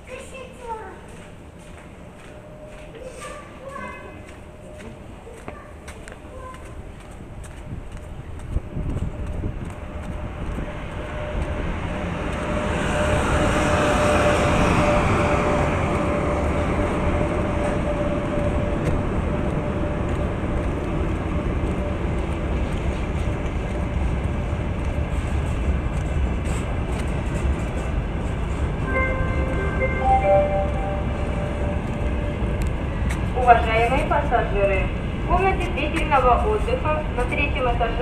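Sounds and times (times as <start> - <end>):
train rumble with whine: 0.0 - 38.0
public address chime: 2.7 - 5.8, 28.8 - 32.5.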